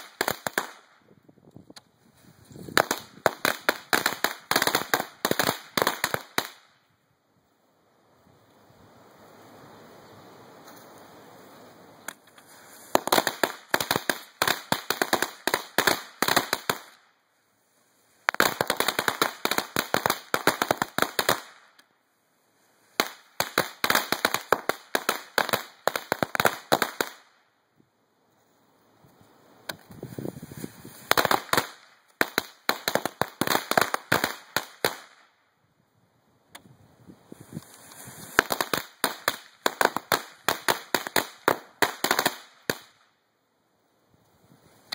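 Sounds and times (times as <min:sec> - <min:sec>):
firecrackers going off: 0:00.0 - 0:01.1, 0:02.4 - 0:06.8, 0:12.1 - 0:17.2, 0:17.8 - 0:21.9, 0:22.6 - 0:27.4, 0:29.6 - 0:35.4, 0:37.2 - 0:43.2.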